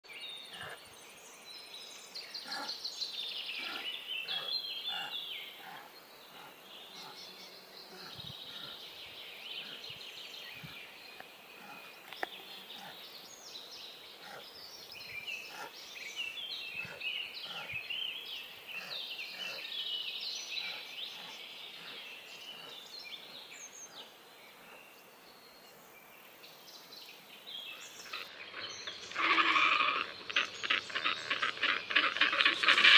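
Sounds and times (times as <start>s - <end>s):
chorus of birds chirping: 0.0s - 32.9s
harsh rapid bird calls: 28.0s - 32.9s.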